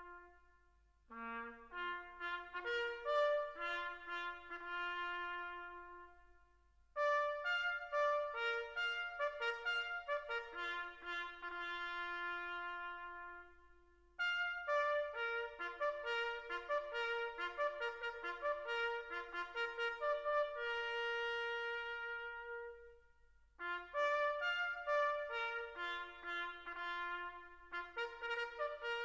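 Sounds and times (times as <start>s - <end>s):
trumpet playing melody: 0.0s - 6.4s, 7.0s - 23.0s, 23.6s - 29.0s.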